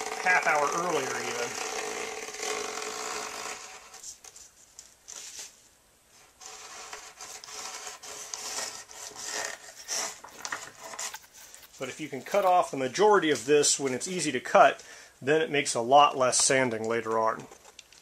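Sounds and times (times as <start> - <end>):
knife cutting fiberglass cloth: 0.0 - 4.1, 6.4 - 12.6.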